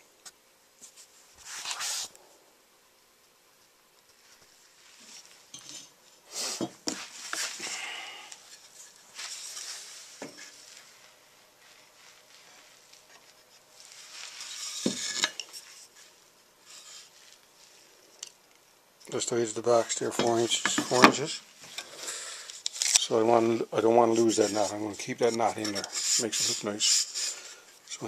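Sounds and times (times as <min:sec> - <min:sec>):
rustling: 0:00.8 - 0:02.2, 0:03.6 - 0:06.3, 0:06.9 - 0:18.1.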